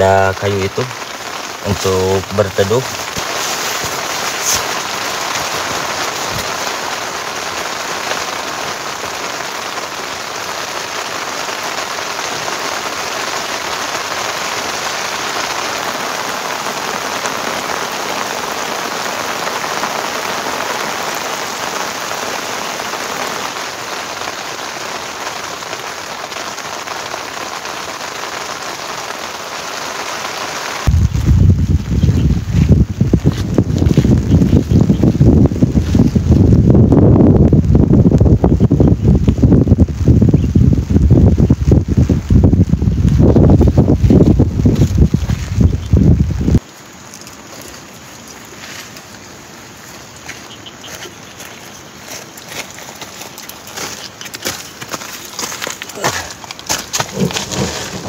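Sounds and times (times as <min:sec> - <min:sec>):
heavy rain falling: 0:00.0 - 0:58.0
wind rumble on microphone: 0:30.8 - 0:46.6.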